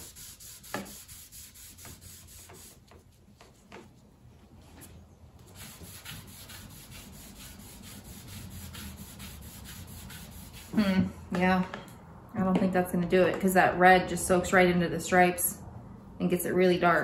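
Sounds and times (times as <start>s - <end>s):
rubbing finish on wooden board: 0.0s - 4.1s, 5.5s - 10.8s.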